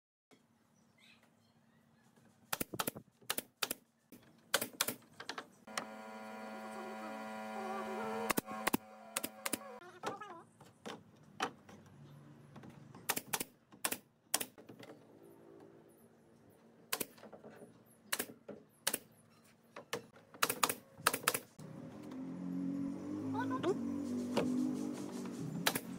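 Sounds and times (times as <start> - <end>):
nail gun firing into wood: 2.5 - 3.8, 4.5 - 5.1, 8.2 - 9.7, 13.1 - 14.6, 16.9 - 17.3, 18.1 - 19.1, 20.4 - 21.6, 25.6 - 25.9.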